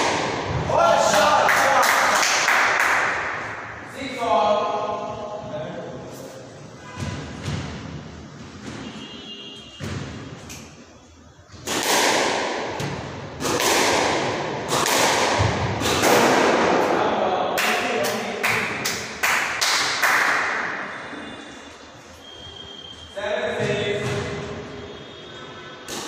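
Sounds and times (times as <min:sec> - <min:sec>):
squash ball smacks echoing: 0:00.0 - 0:01.3, 0:09.8 - 0:10.8, 0:11.5 - 0:17.1.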